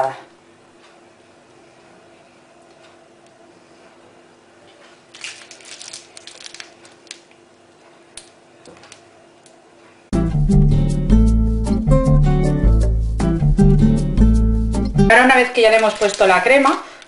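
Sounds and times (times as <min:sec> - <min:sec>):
piping bag crinkling: 0:05.0 - 0:07.5, 0:15.4 - 0:17.0.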